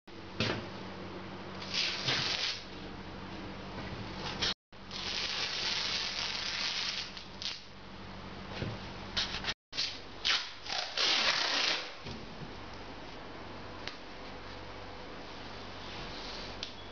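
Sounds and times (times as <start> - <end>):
masking tape pulled off roll: 1.6 - 2.6, 4.9 - 7.6, 9.8 - 12.0.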